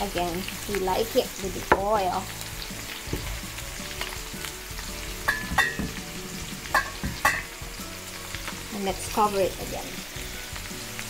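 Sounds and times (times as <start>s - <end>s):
meat sizzling in a pan: 0.0s - 11.0s
tongs clinking against pan: 6.7s - 7.5s.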